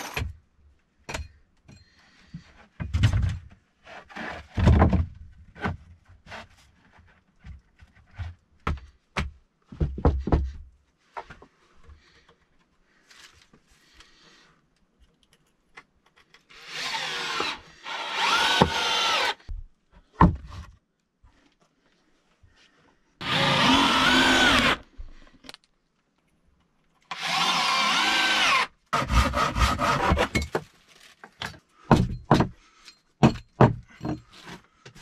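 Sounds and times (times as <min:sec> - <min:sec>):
cordless drill whirring: 0:16.5 - 0:19.4, 0:23.2 - 0:24.8, 0:27.1 - 0:28.7.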